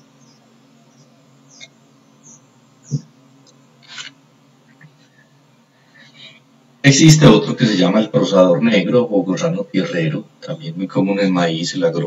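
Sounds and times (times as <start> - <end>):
faint high chirps: 0.0 - 3.6
low steady hum: 0.0 - 12.0.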